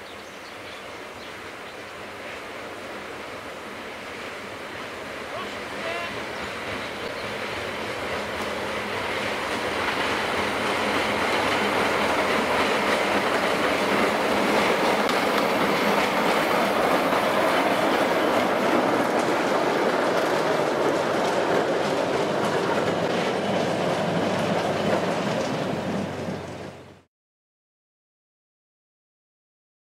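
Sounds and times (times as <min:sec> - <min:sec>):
steam locomotive passing: 0:00.0 - 0:27.1
wagons rattling over rail joints: 0:05.3 - 0:26.9.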